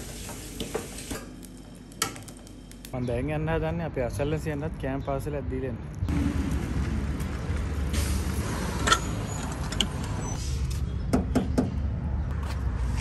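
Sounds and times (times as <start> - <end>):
vehicle engine rumble: 5.9 - 13.0.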